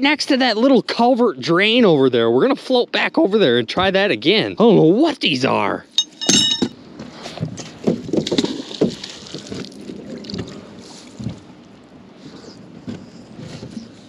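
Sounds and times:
ringing metal clink: 5.9s - 6.7s
knocks and rustling: 6.0s - 9.6s.

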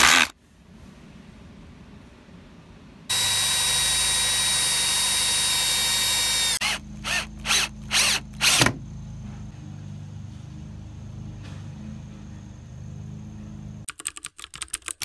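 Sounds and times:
drill driving screw in bursts: 3.1s - 8.7s
drill whining into wood: 3.1s - 8.7s.

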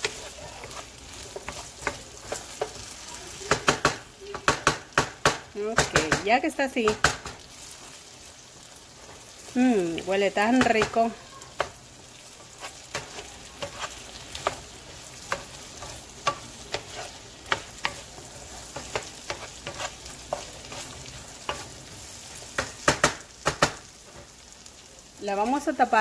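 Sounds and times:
wooden spoon scraping pan: 0.0s - 3.0s, 12.4s - 22.6s
potatoes sizzling in frying pan: 0.0s - 26.0s.

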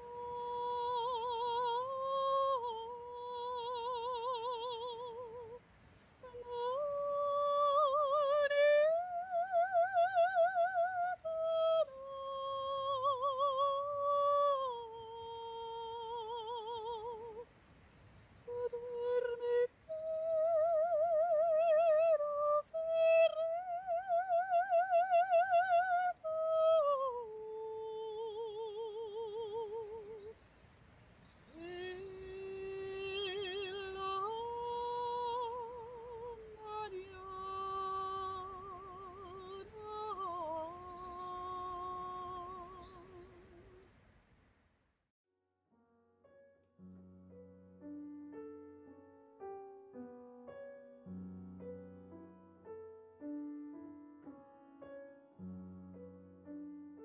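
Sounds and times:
woman singing solo: 6.2s - 17.5s, 18.5s - 30.3s, 31.5s - 43.8s.

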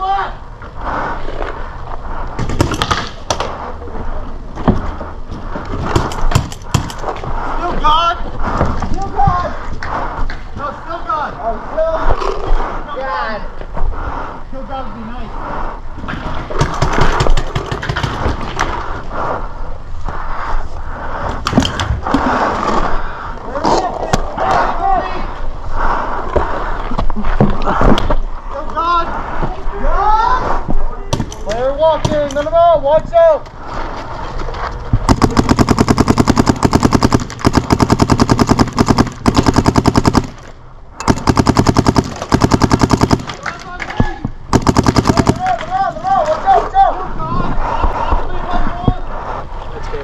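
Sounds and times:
paintball markers firing: 2.4s - 3.6s, 5.8s - 7.2s, 16.5s - 18.8s, 35.0s - 45.8s.

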